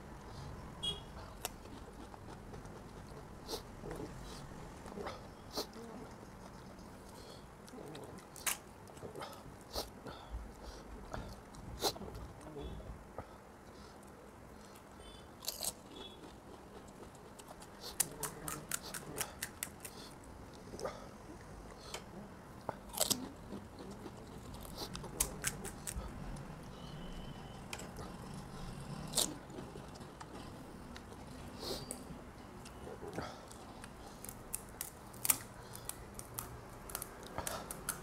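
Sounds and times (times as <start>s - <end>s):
faint chewing: 1.2s - 38.0s
crisp shells cracking and crunching: 7.9s - 9.0s, 33.8s - 38.0s.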